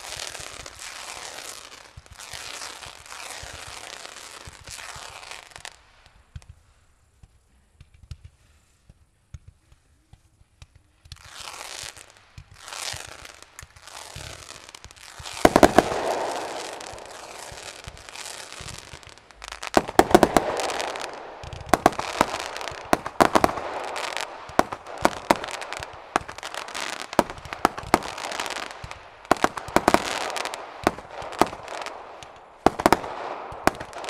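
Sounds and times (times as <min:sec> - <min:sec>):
fireworks crackling bursts: 0:00.0 - 0:34.0
small firework pops: 0:00.0 - 0:34.0
sharp firework bangs: 0:12.4 - 0:34.0.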